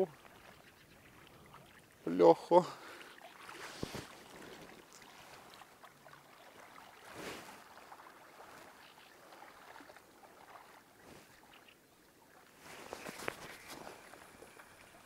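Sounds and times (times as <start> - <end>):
faint wind: 0.0 - 15.0
small waves lapping against shore: 0.0 - 15.0.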